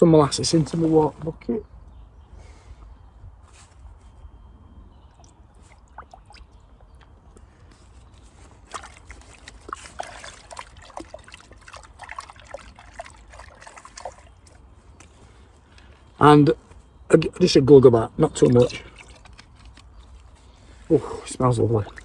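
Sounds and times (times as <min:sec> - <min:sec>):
water dripping and splashing in bucket: 0:05.1 - 0:07.1, 0:08.6 - 0:15.2, 0:18.2 - 0:20.4, 0:21.4 - 0:22.0.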